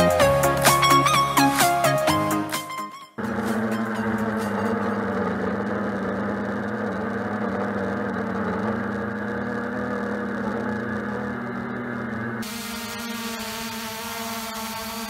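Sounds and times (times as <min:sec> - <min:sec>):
drone propellers humming: 0:00.0 - 0:15.0
hovering drone buzzing whine: 0:03.1 - 0:15.0.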